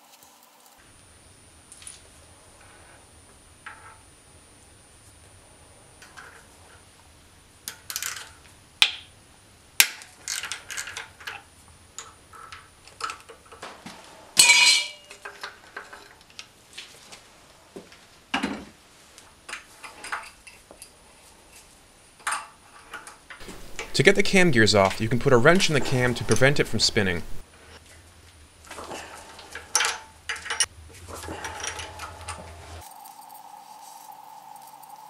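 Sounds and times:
hand tools clinking on metal: 14.4 - 16.2.

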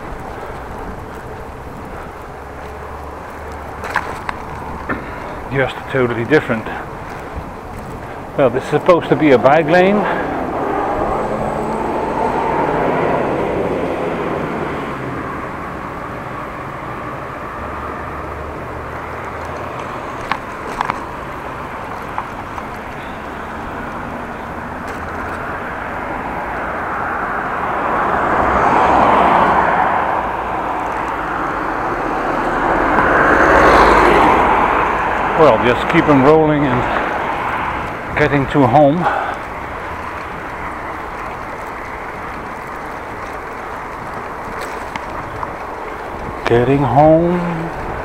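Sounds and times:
bicycle tyres rolling on bricks: 0.0 - 48.0
wind rushing: 6.8 - 14.7.

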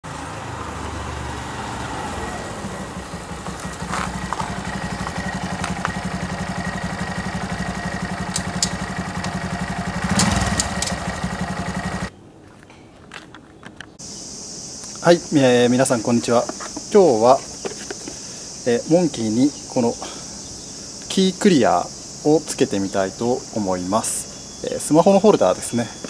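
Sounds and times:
motorcycle engine running and idling: 2.3 - 12.1.

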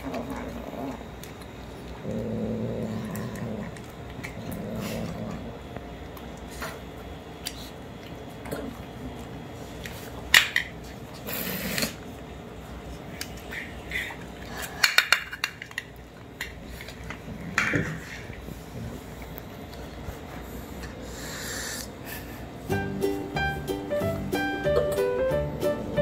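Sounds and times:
kittens eating wet food: 0.0 - 22.6.

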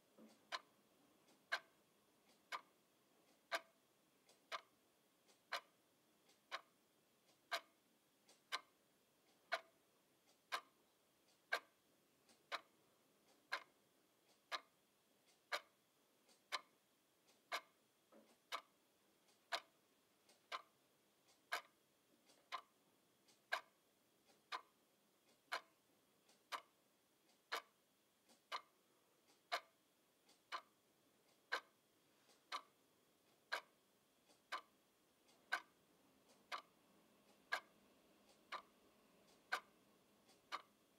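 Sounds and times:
alarm clock ticking: 0.0 - 40.9.

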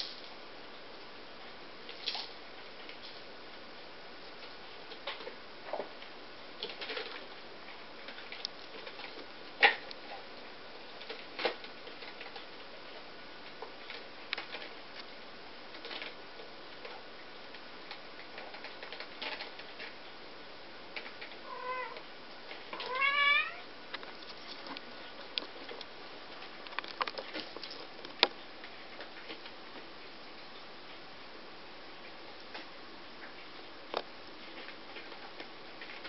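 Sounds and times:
kitten meowing: 21.5 - 22.0, 22.8 - 23.7.

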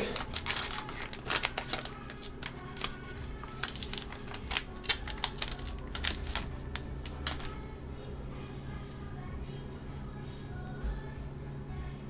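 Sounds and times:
wrapper crinkling: 0.0 - 7.6.

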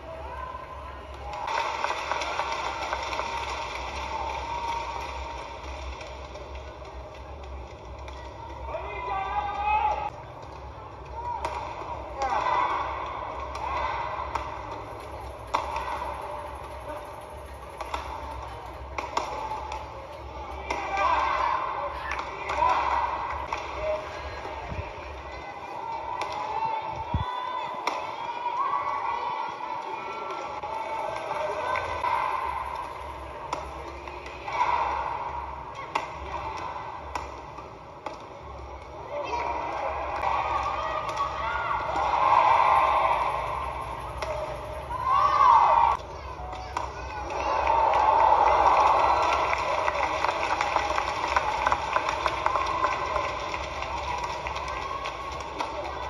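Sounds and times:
arena background noise: 0.0 - 56.0
crowd murmur: 0.0 - 56.0
rackets hitting shuttlecock: 9.9 - 25.1, 30.1 - 47.7.

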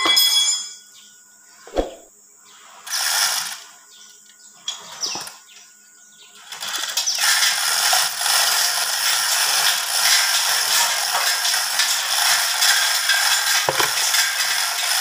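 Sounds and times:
hoist chain rattling: 6.5 - 15.0.

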